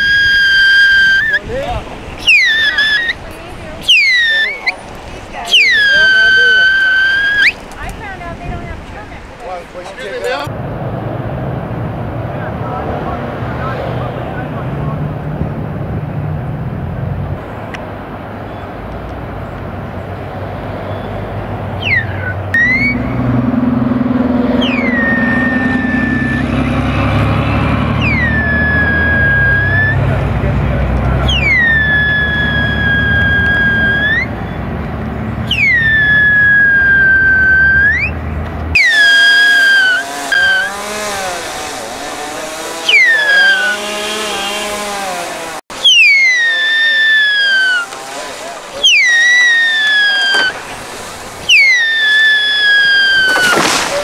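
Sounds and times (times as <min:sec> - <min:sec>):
high whistling squeals: 0:00.0 - 0:07.6, 0:21.8 - 0:23.4, 0:24.5 - 0:30.2, 0:31.2 - 0:34.6, 0:35.4 - 0:38.2, 0:38.8 - 0:40.8, 0:42.8 - 0:44.6, 0:45.7 - 0:53.8
chainsaw revving: 0:38.7 - 0:54.0.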